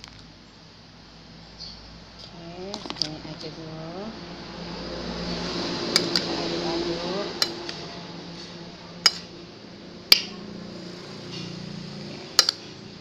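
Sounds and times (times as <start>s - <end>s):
metal spoon clinking on glass bowl: 6.0s - 6.3s, 7.4s - 7.7s, 9.0s - 9.3s, 12.4s - 12.7s.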